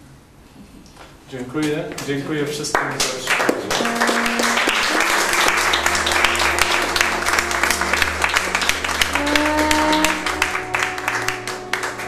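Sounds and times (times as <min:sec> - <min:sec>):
audience applauding: 0:02.7 - 0:12.0.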